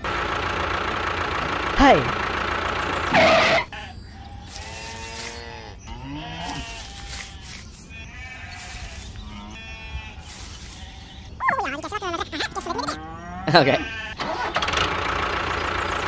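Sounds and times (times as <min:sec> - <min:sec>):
wavering bleat-like calls: 0:03.1 - 0:14.3.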